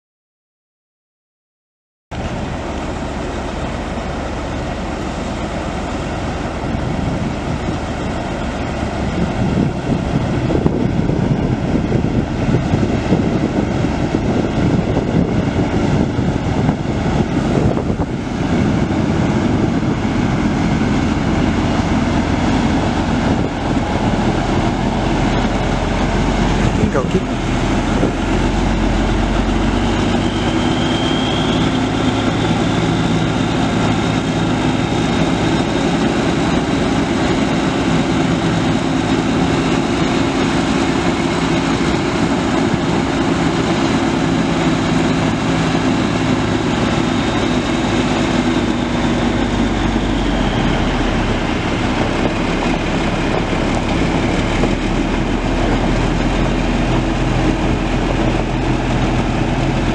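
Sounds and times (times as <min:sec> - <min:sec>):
diesel truck engine running: 0:02.1 - 0:59.9
high whine: 0:02.1 - 0:59.9.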